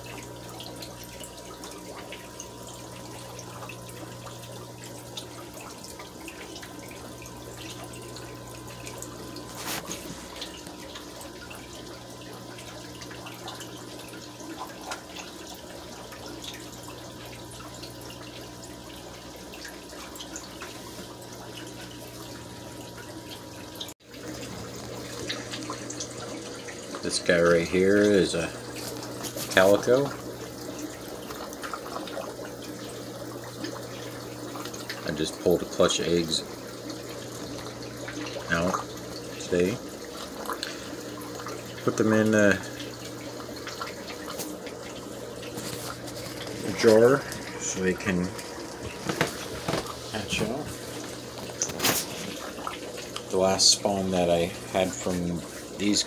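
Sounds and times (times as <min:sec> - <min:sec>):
aquarium water trickling: 0:00.0 - 0:56.0
low electrical hum: 0:00.0 - 0:56.0.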